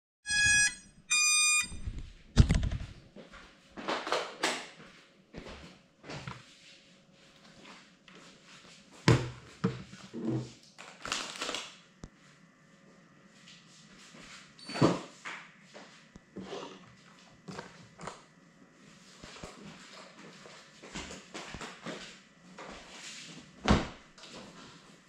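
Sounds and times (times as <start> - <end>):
electronic beep: 0.3 - 2.0.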